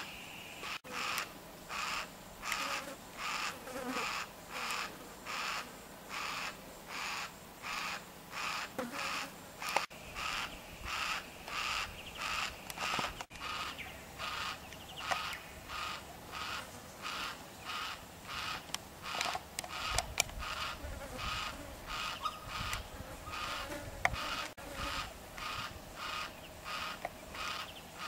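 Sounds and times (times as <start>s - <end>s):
cockatoo calling: 0.0s - 28.0s
sharp clicks: 14.7s - 15.4s, 18.6s - 20.4s.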